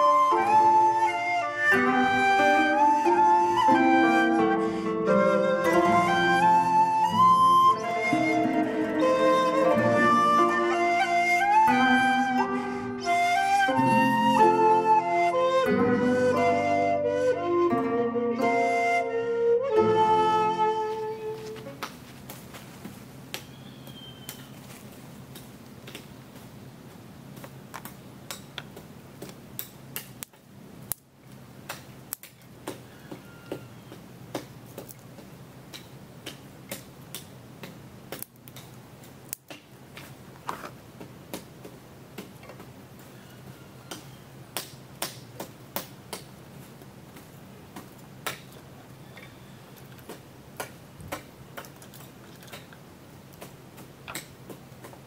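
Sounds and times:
dry twigs snapping: 21.4s - 32.9s, 33.9s - 43.1s, 43.9s - 55.0s.

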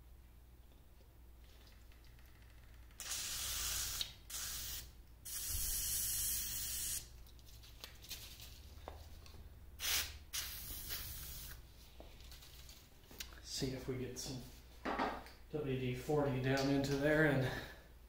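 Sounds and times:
aerosol spray hissing: 3.0s - 7.0s, 9.8s - 11.6s.

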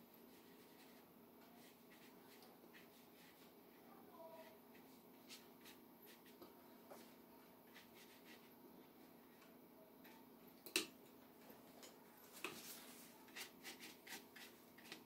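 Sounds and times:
brush on paper: 0.2s - 8.6s, 12.3s - 15.0s.

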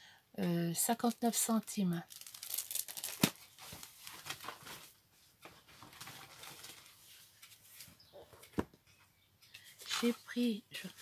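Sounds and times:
packaging rustling: 2.1s - 7.0s.

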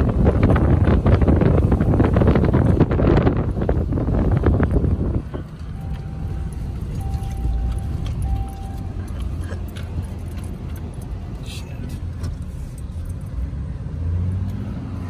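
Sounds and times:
wind gust noise: 0.0s - 9.1s
truck driving low rumble: 0.0s - 15.0s
steady tones: 5.0s - 11.4s.

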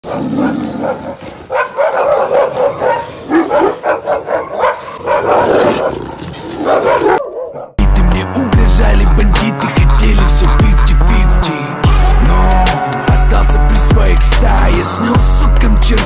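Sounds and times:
dog barking: 0.0s - 7.8s
music with heavy bass beat: 7.8s - 16.0s.

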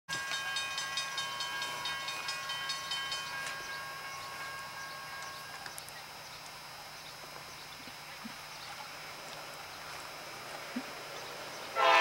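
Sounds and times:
railroad crossing bell ringing: 0.1s - 5.8s, 11.8s - 12.0s.

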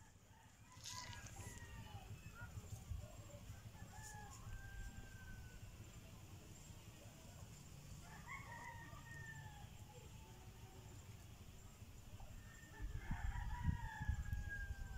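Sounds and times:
rooster crowing: 0.3s - 2.4s, 3.6s - 5.7s, 8.0s - 9.8s, 12.4s - 14.9s.

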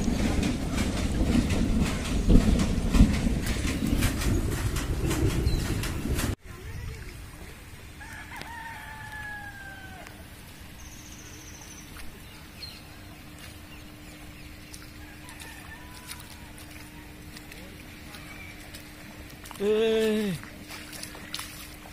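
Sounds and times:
low rumble: 0.0s - 8.0s
rooster crowing: 8.0s - 10.2s, 15.0s - 17.2s.

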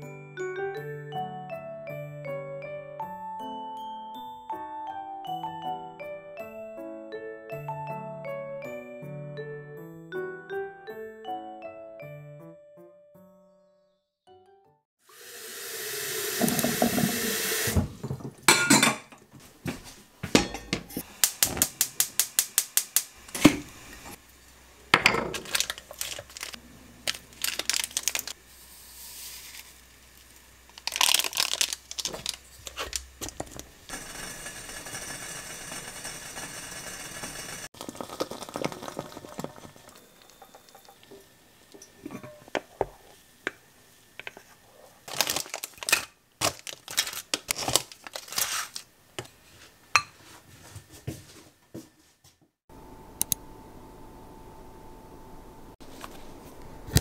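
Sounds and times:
dishes and utensils clinking: 18.0s - 19.2s, 20.3s - 21.0s, 25.0s - 26.0s, 39.3s - 43.0s
steady hiss: 21.0s - 25.0s.

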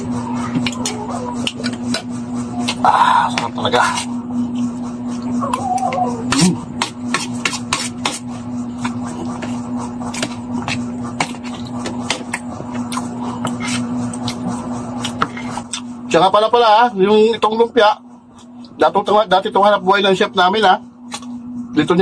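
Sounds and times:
steady hum: 0.0s - 22.0s
cutlery scraping on a plate: 13.4s - 14.4s.

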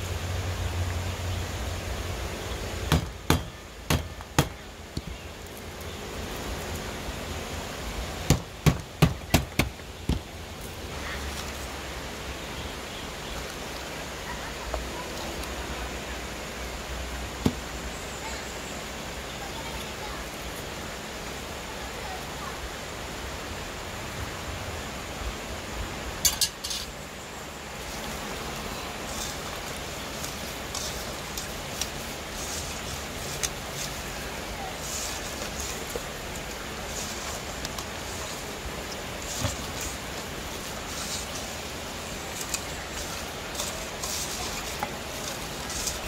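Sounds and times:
steady background hiss: 0.0s - 46.0s
sharp knocks: 2.9s - 4.6s, 8.3s - 10.3s.

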